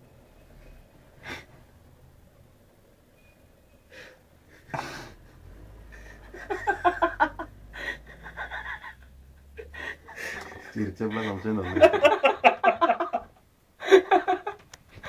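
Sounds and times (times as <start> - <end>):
stifled giggling: 6.1 - 14.6.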